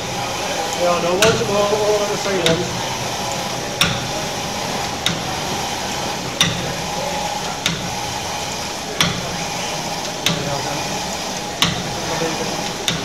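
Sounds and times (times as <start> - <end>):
engine clicks: 0.0 - 13.0
steam engine hissing: 0.0 - 13.0.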